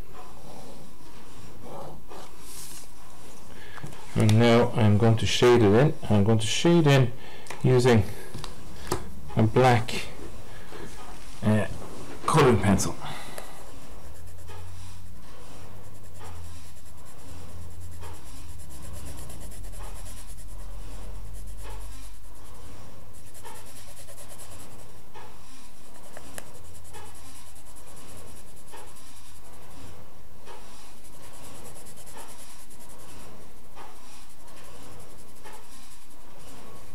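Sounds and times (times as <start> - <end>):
steady low hum: 0.0 - 36.9
pencil shading on paper: 13.0 - 36.9.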